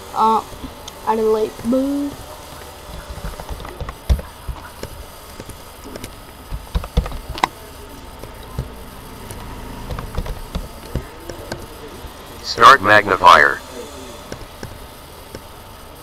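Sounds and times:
steady low hum: 0.0s - 16.0s
keyboard key presses: 2.9s - 7.5s, 8.2s - 11.7s.

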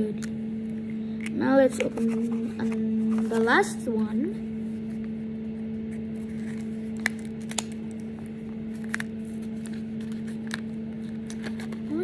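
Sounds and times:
steady low hum: 0.0s - 12.0s
paper crackling: 5.9s - 12.0s.

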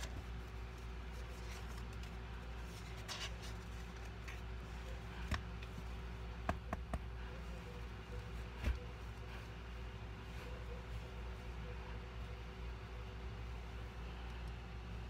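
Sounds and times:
soft rustle: 0.0s - 6.3s
faint hum: 0.0s - 15.0s.

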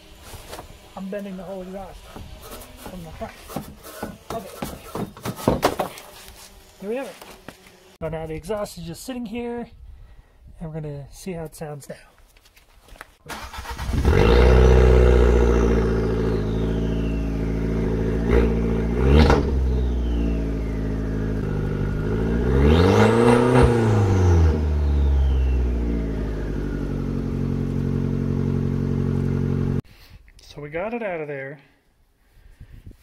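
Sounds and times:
car engine cranking and idling: 13.3s - 29.8s
engine revving: 13.3s - 29.8s.

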